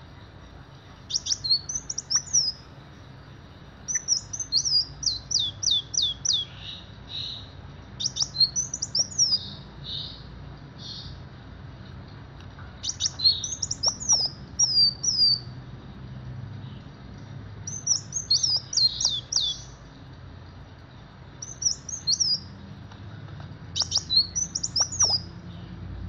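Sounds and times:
sunbird chirping: 0:00.0 - 0:11.4, 0:12.8 - 0:15.6, 0:16.6 - 0:25.8.

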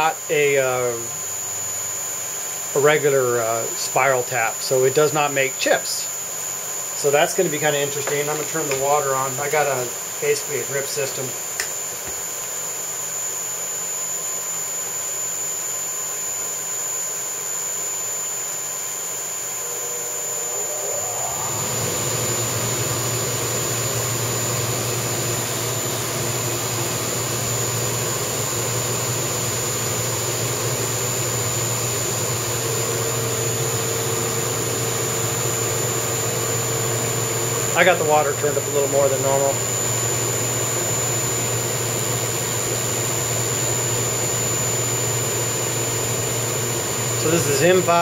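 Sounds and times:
milling machine spindle running: 0:14.4 - 0:48.0.

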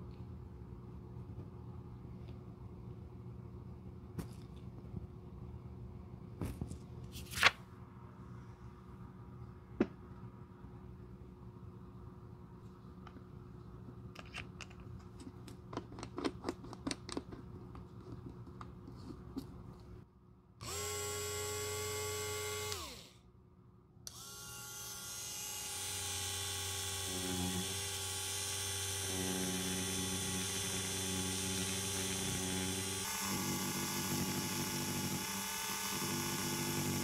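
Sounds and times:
rotary sander whining: 0:24.1 - 0:37.0.

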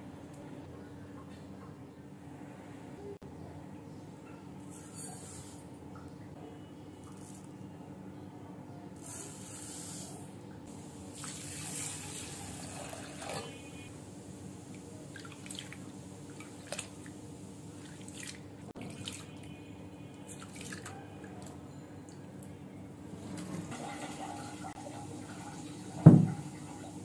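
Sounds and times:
water pouring: 0:11.1 - 0:13.6, 0:23.6 - 0:27.0.

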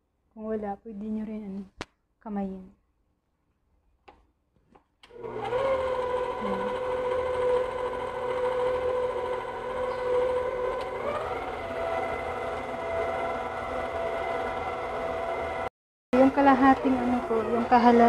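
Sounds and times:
stand mixer motor whine: 0:05.1 - 0:18.0.

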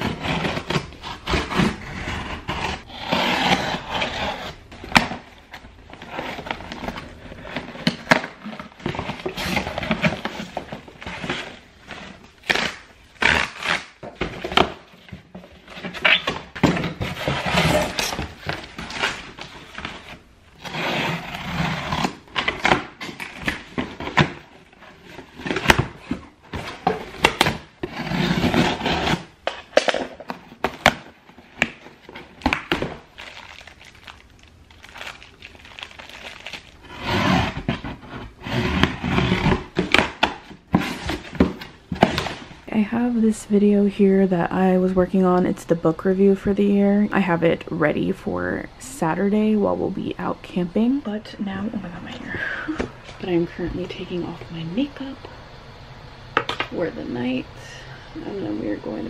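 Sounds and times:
packaging rustling and crinkling: 0:00.0 - 0:42.7.

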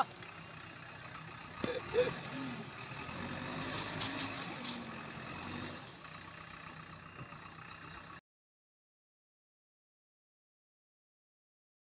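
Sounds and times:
diesel engine running: 0:00.0 - 0:08.2.

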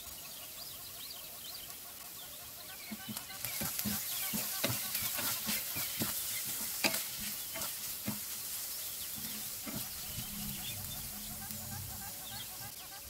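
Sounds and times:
soft sizzle: 0:00.0 - 0:13.0
spatula scraping frying pan: 0:02.9 - 0:12.6.

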